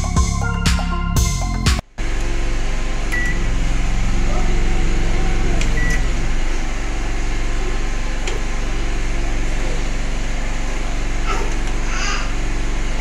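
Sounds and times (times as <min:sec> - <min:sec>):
microwave oven humming: 0:00.0 - 0:13.0.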